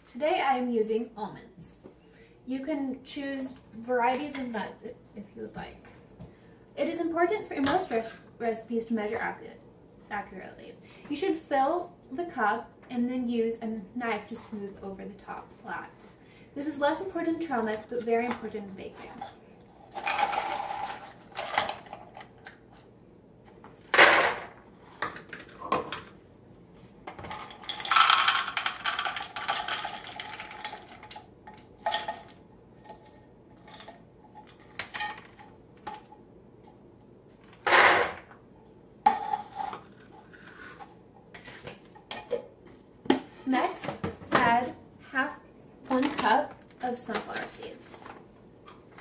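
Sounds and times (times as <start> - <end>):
nuts rattling on plastic: 27.3 - 31.2.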